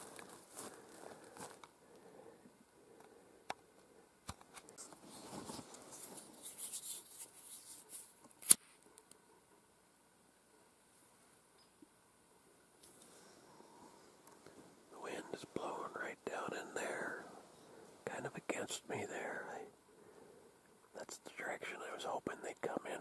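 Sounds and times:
clothing and vegetation rustling: 4.6s - 8.8s.

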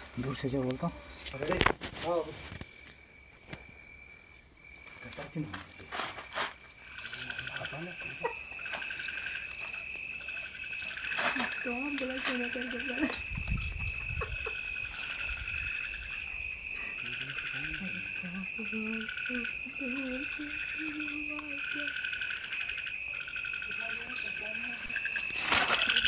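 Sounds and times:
frogs croaking: 0.0s - 26.0s
insect trill: 0.0s - 26.0s.

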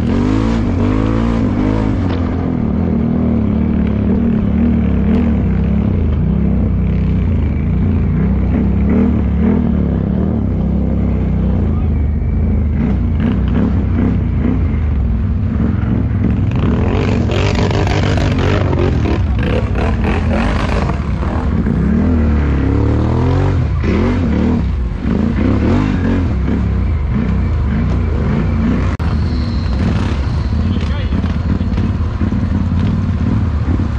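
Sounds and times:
quad bike engines revving: 0.0s - 33.9s.

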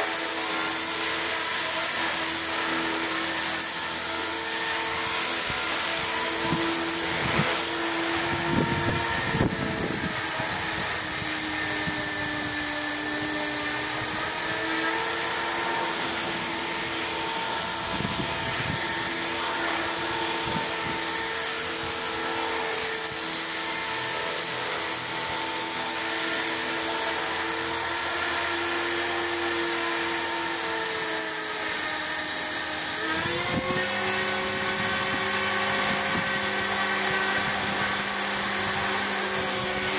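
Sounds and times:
rc helicopter motor whine: 0.0s - 39.9s
rotor whirring: 0.0s - 39.9s
wind buffeting microphone: 8.2s - 12.5s.

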